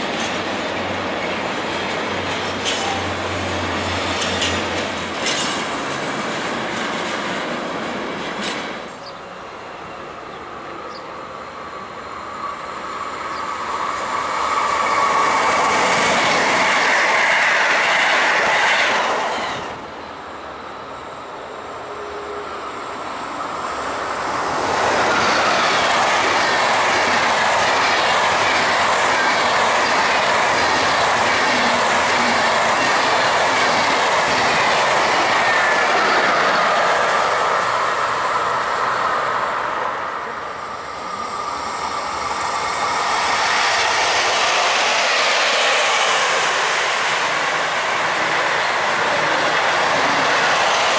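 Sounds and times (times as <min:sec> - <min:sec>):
train wheels clattering: 0:00.0 - 0:09.1, 0:24.6 - 0:36.8
train passing: 0:00.0 - 0:50.9.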